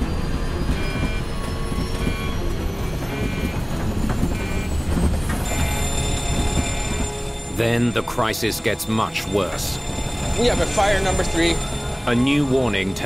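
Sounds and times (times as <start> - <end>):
high-pitched alarm tone: 0.5 - 3.6, 4.3 - 13.0
electronic warning beep: 0.7 - 3.7, 4.3 - 8.0
thin high whine: 5.4 - 13.0.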